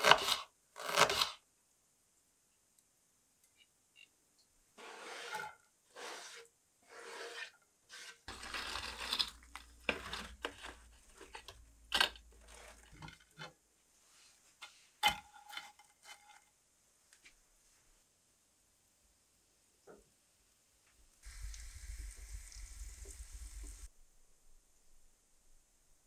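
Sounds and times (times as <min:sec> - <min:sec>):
frying pan scraping oven floor: 0:04.8 - 0:10.8.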